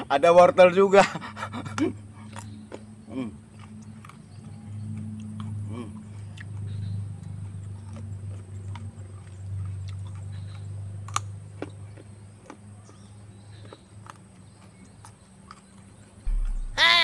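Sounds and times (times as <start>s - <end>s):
chewing a raw carrot: 1.3s - 16.8s
low hum: 16.2s - 17.0s.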